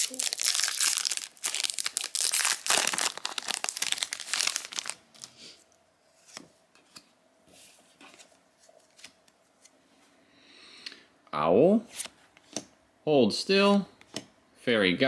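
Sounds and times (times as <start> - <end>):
wrapper tearing and crinkling: 0.0 - 5.3.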